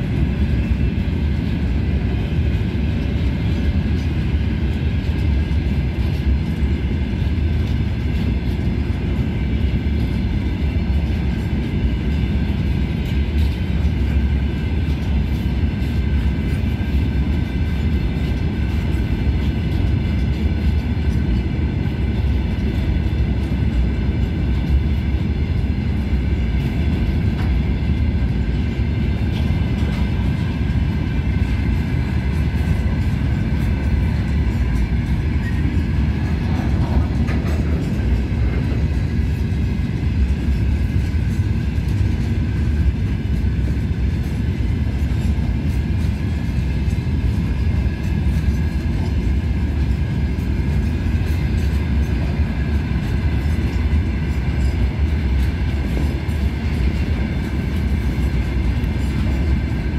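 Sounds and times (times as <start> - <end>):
freight train wheels rumbling on rails: 0.0 - 59.9.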